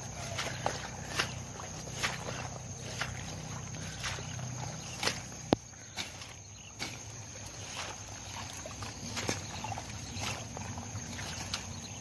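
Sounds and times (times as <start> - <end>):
footsteps: 0.0 - 11.7
leaves and stems rustling: 0.0 - 12.0.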